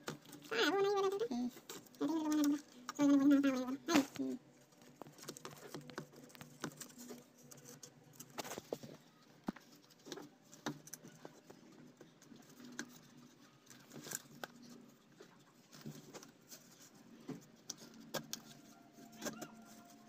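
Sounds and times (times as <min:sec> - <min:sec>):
faint clicks and taps of plastic parts: 0:03.9 - 0:19.8.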